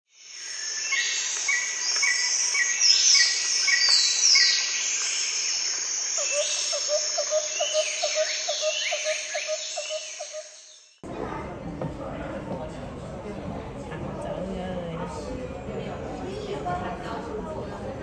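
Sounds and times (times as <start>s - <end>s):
insect drone: 0.1s - 11.0s
bird chirping: 0.2s - 11.0s.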